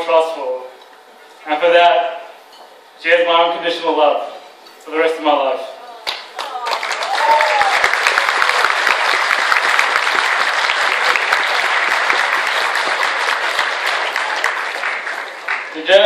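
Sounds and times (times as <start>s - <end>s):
audience applauding: 6.0s - 16.0s.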